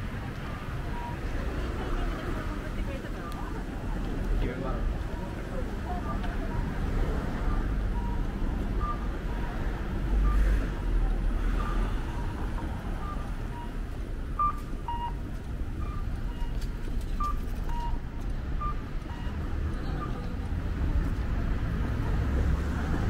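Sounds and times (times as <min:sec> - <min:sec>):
street traffic: 0:00.0 - 0:23.0
crossing signal guide tone: 0:00.4 - 0:20.5
vehicle passing: 0:18.6 - 0:23.0.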